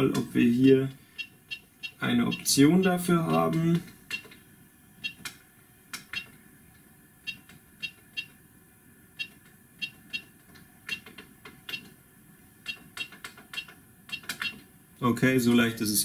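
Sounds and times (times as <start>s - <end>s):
printer buttons clicking: 9.2s - 12.0s, 12.6s - 14.7s.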